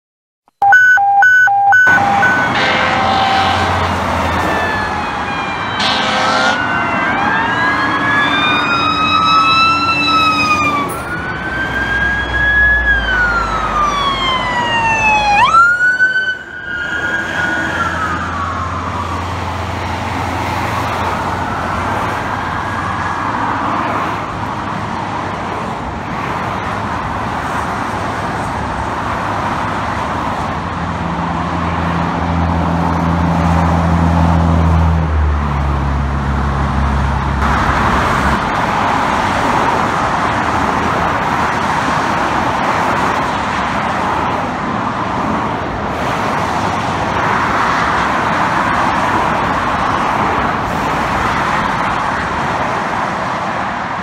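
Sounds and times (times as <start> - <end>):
highway traffic noise: 0.5 - 54.0
sirens wailing: 0.6 - 30.7, 37.3 - 54.0
vehicle horn blasts: 0.8 - 4.0, 5.8 - 6.7.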